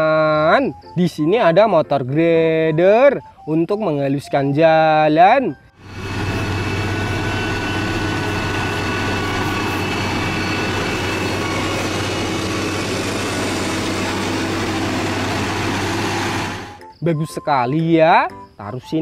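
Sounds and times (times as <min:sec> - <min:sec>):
diesel engine running: 0:05.8 - 0:16.8.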